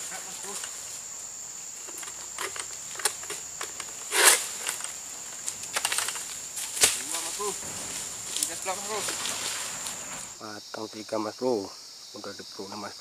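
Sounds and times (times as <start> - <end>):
fronds crackling and rustling: 0.0 - 10.4
high insect drone: 0.0 - 13.0
sharp crack of cut stalk: 2.4 - 7.5
rasping scrape: 4.0 - 4.8.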